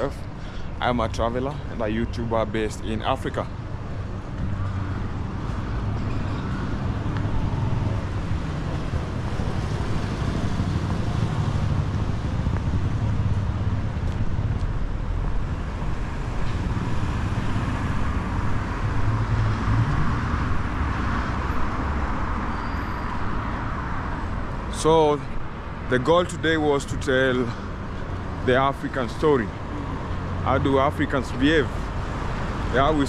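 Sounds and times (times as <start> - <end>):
cars passing: 0.0 - 33.0
wind rumbling on microphone: 6.8 - 22.4.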